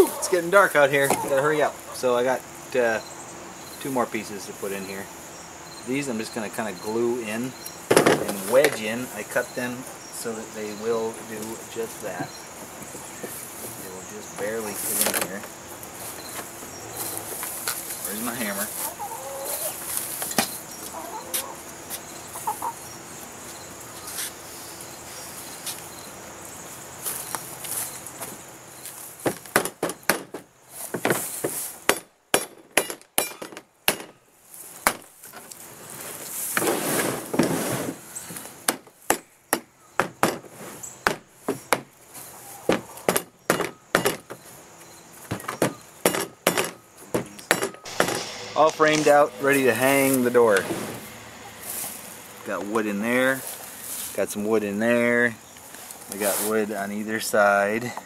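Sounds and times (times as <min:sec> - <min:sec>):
chickens clucking: 0:00.0 - 0:05.1, 0:05.8 - 0:25.4, 0:42.1 - 0:43.2, 0:50.4 - 0:58.0.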